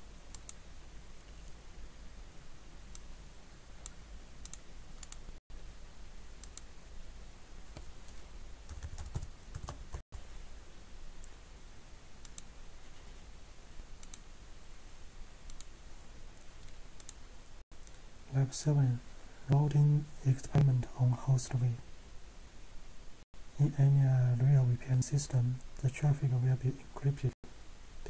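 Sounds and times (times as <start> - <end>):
faint low hum: 0.0 - 28.0
computer keyboard keystrokes: 8.7 - 10.0.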